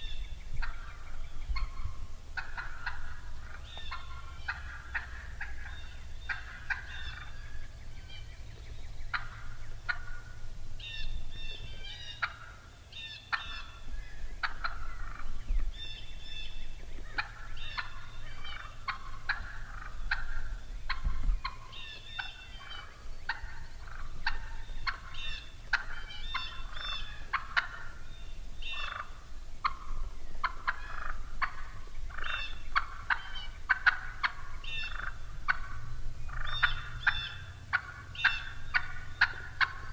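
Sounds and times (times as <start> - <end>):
wild turkeys clucking and yelping: 0.0 - 39.9.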